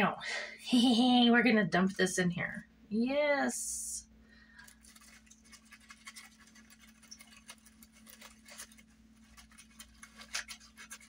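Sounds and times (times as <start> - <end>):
low steady hum: 0.0 - 11.0
glitter scratching and rustling: 4.6 - 11.0.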